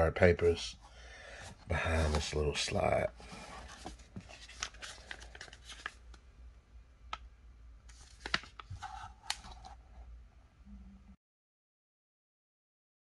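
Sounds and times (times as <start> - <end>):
paper rustling and crinkling: 1.7 - 6.1, 7.9 - 9.8.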